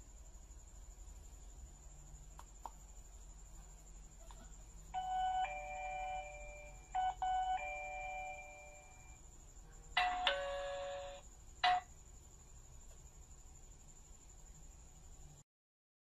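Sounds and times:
doorbell ding-dong chime: 5.0s - 9.1s.

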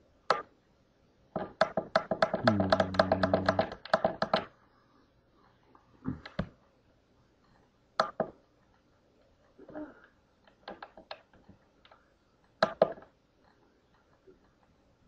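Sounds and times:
computer keyboard key taps: 1.6s - 4.5s.

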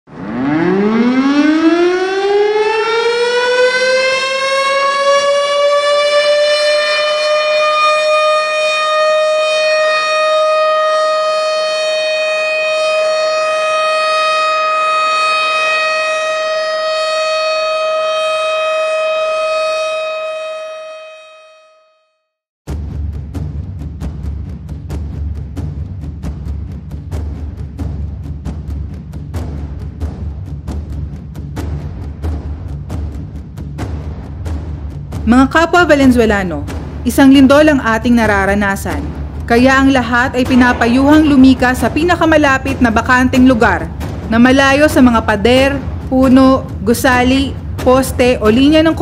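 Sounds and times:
civil defense siren wailing: 0.1s - 22.4s, 35.2s - 49.0s.

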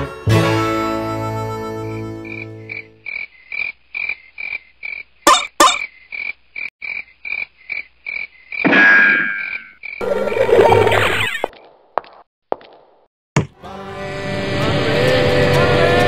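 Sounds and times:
frogs croaking: 2.2s - 11.4s.

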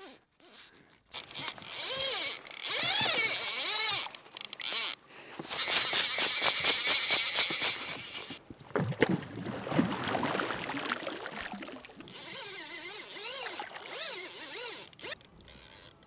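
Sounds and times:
fly line hissing through guides: 4.8s - 8.4s, 12.1s - 15.2s.

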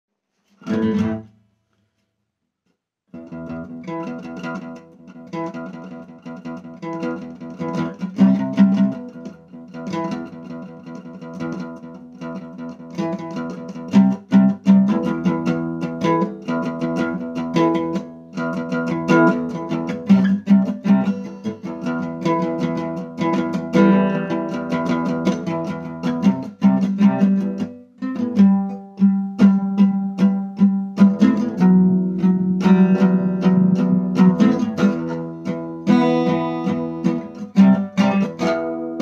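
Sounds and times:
acoustic guitar strumming: 0.6s - 1.4s, 3.2s - 39.0s.

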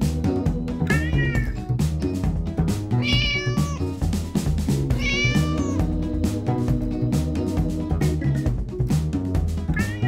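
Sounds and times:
music with drum beat: 0.0s - 10.0s
cat meowing: 0.9s - 1.6s, 3.0s - 4.0s, 4.9s - 5.9s, 9.8s - 10.0s.

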